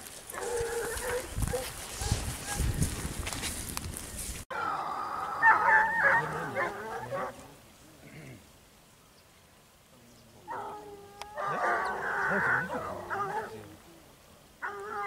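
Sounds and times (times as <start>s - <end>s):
hounds baying: 0.3s - 2.7s, 4.5s - 7.6s, 10.5s - 13.8s, 14.6s - 15.0s.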